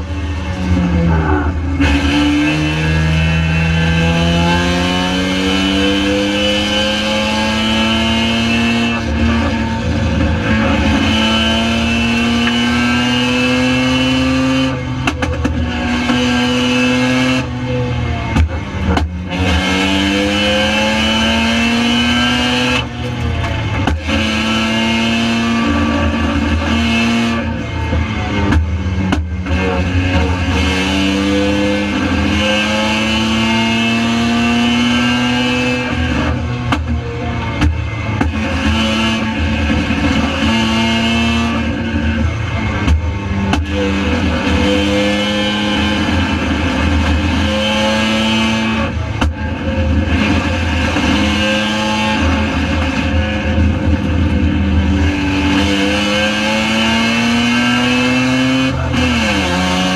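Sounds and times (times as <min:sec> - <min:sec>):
race car engine revving: 0:00.0 - 0:59.9.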